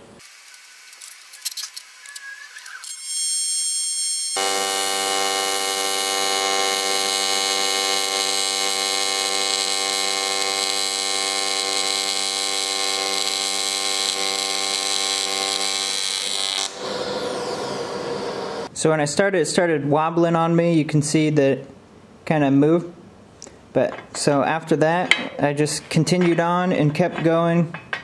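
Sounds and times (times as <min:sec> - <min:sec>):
welding arc buzzing: 0:00.0 - 0:18.7.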